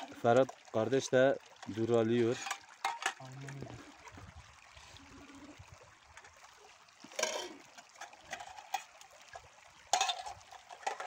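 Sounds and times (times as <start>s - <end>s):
metal cookware rinsed in water: 0.0s - 3.6s, 7.1s - 9.0s, 9.9s - 11.0s
stream trickling over stones: 0.0s - 11.0s
pot clattering: 2.2s - 3.2s, 7.1s - 8.9s, 9.9s - 11.0s.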